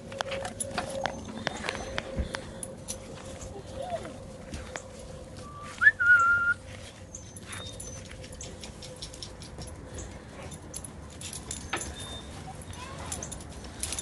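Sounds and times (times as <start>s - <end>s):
paws scuffing on dirt: 0.0s - 10.6s.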